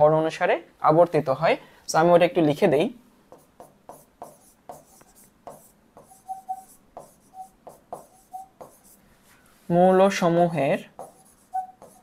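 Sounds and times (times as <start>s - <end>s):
pen scratching on glass: 3.4s - 9.0s, 11.0s - 12.0s
pen tip squeaking on glass: 6.2s - 6.7s, 7.3s - 8.6s, 11.3s - 12.0s.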